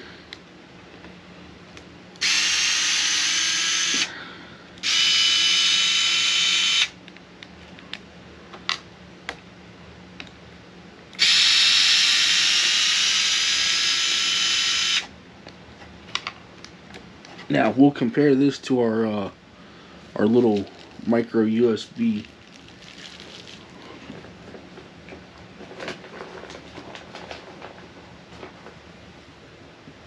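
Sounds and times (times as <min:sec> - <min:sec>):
cordless drill whining: 0:02.2 - 0:04.2, 0:04.8 - 0:06.9, 0:11.2 - 0:15.1.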